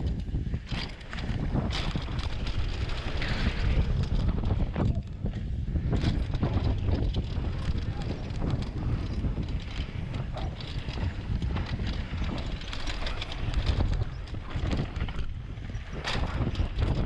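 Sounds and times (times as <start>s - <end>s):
bike knocking and rattling: 0.0s - 17.0s
tyres rumbling over dirt: 0.0s - 17.0s
wind buffeting microphone: 0.0s - 17.0s.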